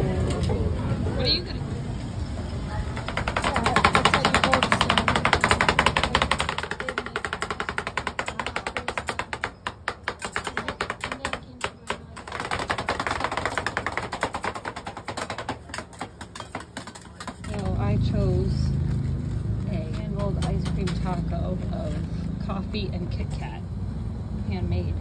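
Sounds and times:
metal spatulas chopping and scraping: 3.1s - 18.3s.

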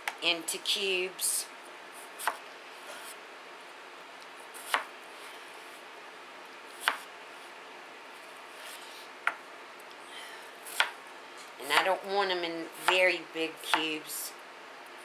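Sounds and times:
knife chopping on cutting board: 2.2s - 2.4s, 4.6s - 4.9s, 6.8s - 7.1s, 10.7s - 11.0s.

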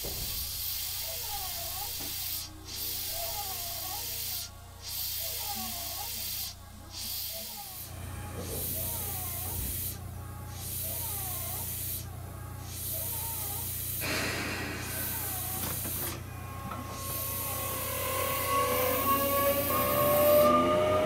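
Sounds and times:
air hiss: 0.0s - 20.9s
electric train equipment hum: 7.9s - 21.0s
traction inverter whine: 16.1s - 21.0s.

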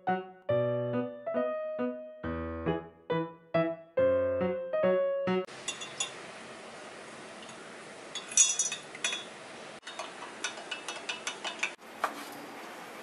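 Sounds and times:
spoon clinking against glass jug: 5.6s - 6.2s, 8.2s - 9.3s.

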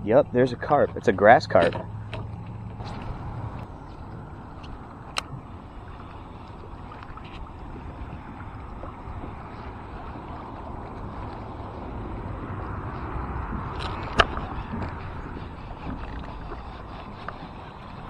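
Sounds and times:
water around a kayak: 0.0s - 18.0s
wind: 0.0s - 18.0s.

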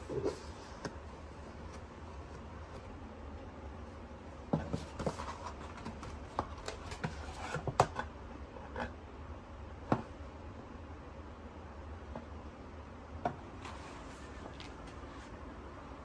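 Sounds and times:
paper and card rustling: 4.6s - 7.8s.

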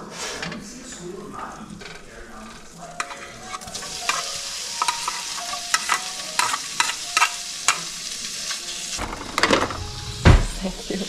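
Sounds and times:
food sizzling in a frying pan: 0.0s - 11.0s
metal utensil scraping plate and pan: 1.8s - 9.9s.

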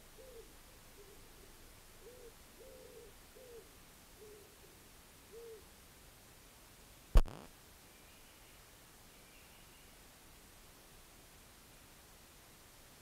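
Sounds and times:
soft hoot-like calls: 0.2s - 5.7s
sharp click: 7.2s - 7.5s.

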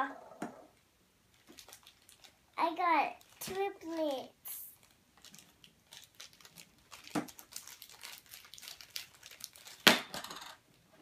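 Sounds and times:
plastic bag crinkling: 1.3s - 9.9s.

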